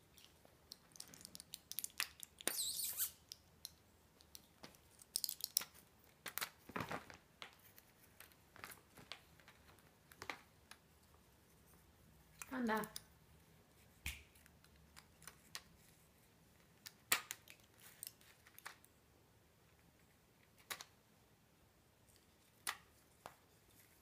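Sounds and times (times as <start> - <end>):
blister pack crinkling and clicking: 0.1 - 10.8.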